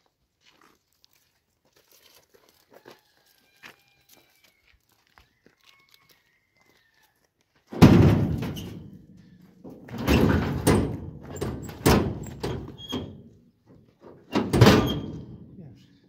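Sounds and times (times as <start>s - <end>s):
metal rattles: 7.7s - 13.3s, 14.2s - 15.5s
metal bangs and clanks: 7.7s - 13.4s, 14.2s - 15.6s.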